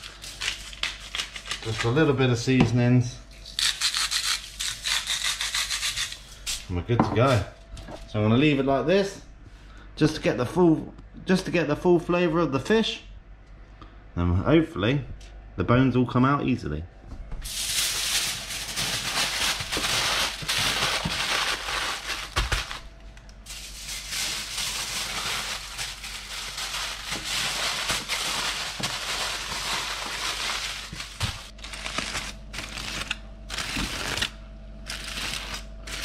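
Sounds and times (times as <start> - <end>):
aluminium foil crinkling: 0.0 - 2.1, 17.5 - 36.0.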